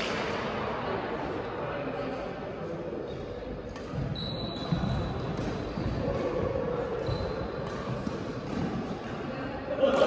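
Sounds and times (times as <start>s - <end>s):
sports hall noise: 0.0s - 10.0s
racket hitting shuttlecock: 3.7s - 9.2s
shoe squeak: 4.0s - 5.4s, 6.9s - 7.6s.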